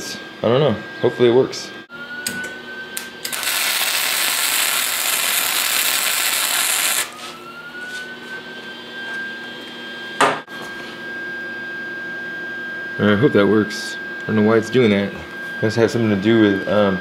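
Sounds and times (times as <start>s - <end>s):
high whine: 0.0s - 11.4s
welder arc crackling hiss: 3.0s - 7.2s.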